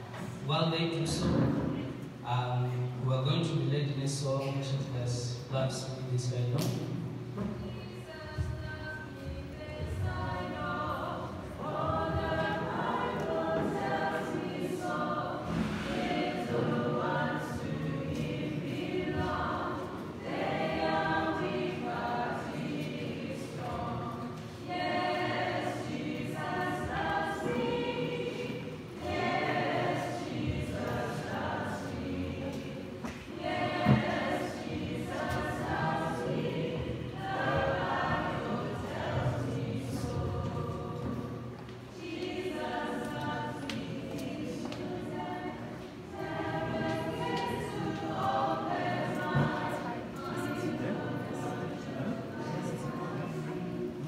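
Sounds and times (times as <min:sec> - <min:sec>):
congregation singing a hymn: 0:00.0 - 0:54.0
brief thump: 0:15.4 - 0:16.2.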